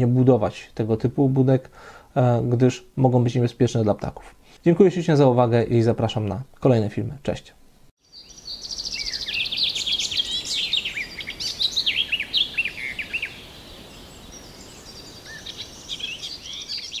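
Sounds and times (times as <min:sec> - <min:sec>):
faint outdoor hiss: 0:00.0 - 0:17.0
songbirds chirping: 0:08.0 - 0:17.0.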